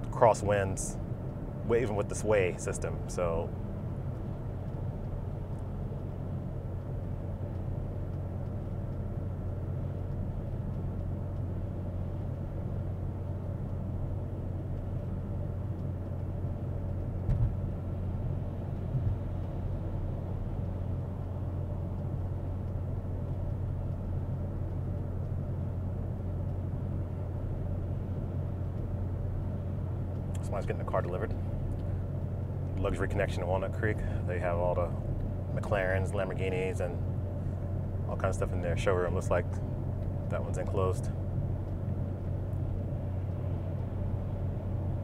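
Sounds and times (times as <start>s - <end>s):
road and wind rumble: 0.0s - 45.0s
short thumps: 17.2s - 17.6s.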